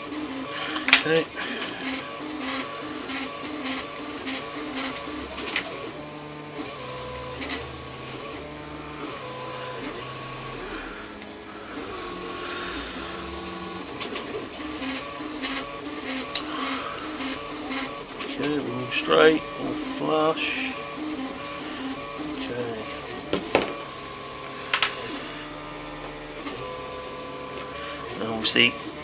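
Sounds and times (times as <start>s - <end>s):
printer stepper motor tones: 0.0s - 29.0s.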